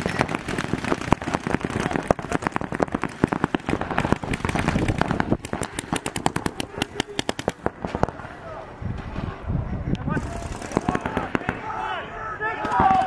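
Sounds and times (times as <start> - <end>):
paintball markers firing: 0.0 - 8.2, 10.2 - 11.6.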